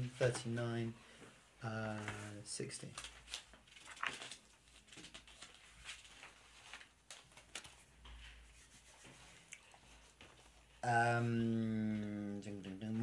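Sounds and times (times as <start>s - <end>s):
book pages turning: 2.0s - 9.3s.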